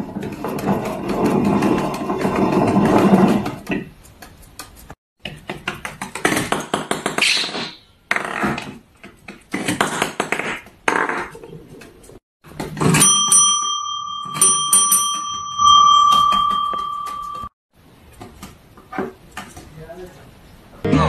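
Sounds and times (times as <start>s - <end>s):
wooden millstone grinding: 0.0s - 5.7s.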